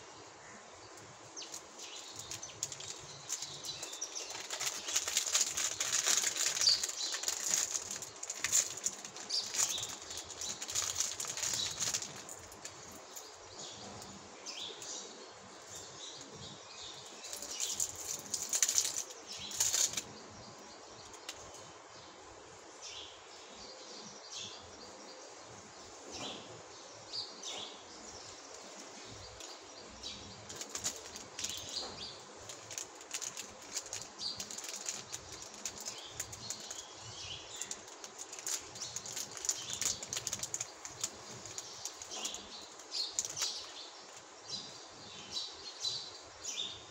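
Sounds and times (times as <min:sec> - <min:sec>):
candy wrappers crinkling: 0:01.4 - 0:13.4, 0:17.2 - 0:20.1, 0:30.5 - 0:44.2.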